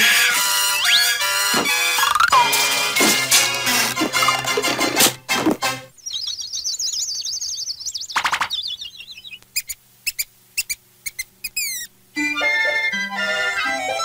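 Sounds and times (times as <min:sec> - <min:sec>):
music: 0:00.0 - 0:05.9, 0:12.2 - 0:14.0
cartoon bird chirping: 0:00.7 - 0:02.8, 0:06.0 - 0:11.9.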